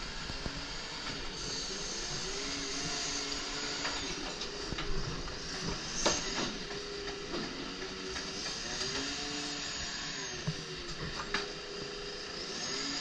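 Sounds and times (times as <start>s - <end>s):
hydraulics whining: 0.0s - 13.0s
hiss: 5.3s - 6.8s.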